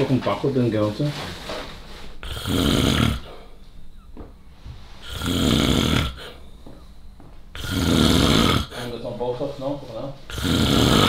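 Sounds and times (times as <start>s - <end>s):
quiet breathing: 1.2s - 7.9s, 8.6s - 11.0s
man snoring: 2.2s - 3.5s, 5.0s - 6.5s, 7.5s - 9.1s, 10.3s - 11.0s.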